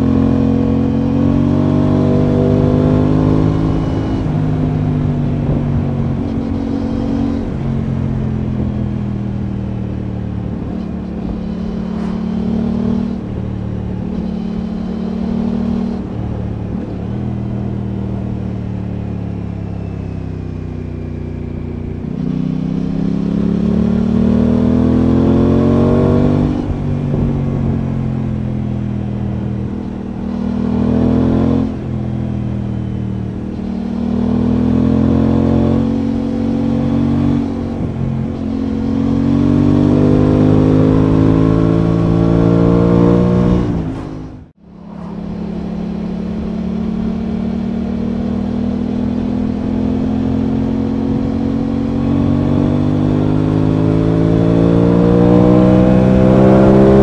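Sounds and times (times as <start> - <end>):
motorcycle engine revving: 0.0 - 57.0
wind noise: 0.8 - 17.8, 21.9 - 47.7.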